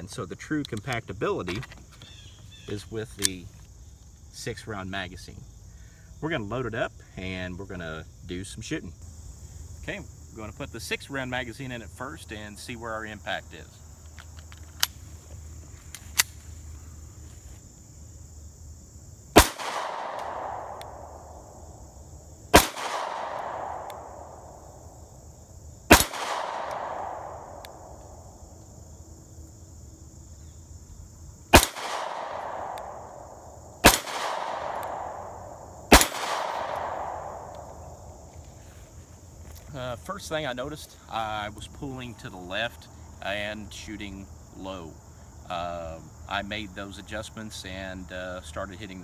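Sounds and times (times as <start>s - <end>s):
pistol shots with echo: 19.4s - 21.3s, 22.5s - 24.4s, 25.9s - 28.0s, 31.5s - 33.2s, 33.8s - 37.7s.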